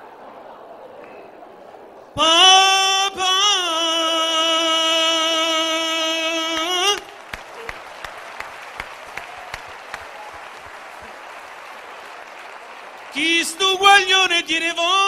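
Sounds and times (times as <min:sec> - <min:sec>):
man singing long note: 0:02.2 - 0:07.1, 0:13.1 - 0:15.0
audience applause: 0:04.9 - 0:15.0.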